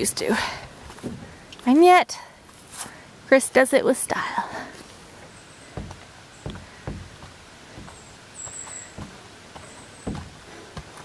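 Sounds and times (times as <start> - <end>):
footsteps on dirt trail: 4.8 - 11.0.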